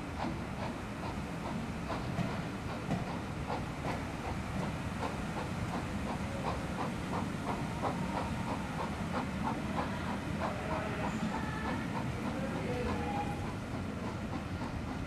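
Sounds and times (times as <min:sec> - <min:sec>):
train rumbling and hissing: 0:00.0 - 0:15.0.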